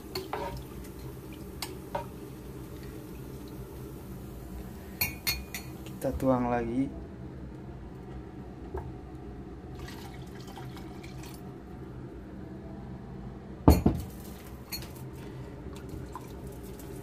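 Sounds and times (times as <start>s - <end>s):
water trickling into pot: 0.0s - 6.0s, 9.8s - 11.4s, 15.7s - 17.0s.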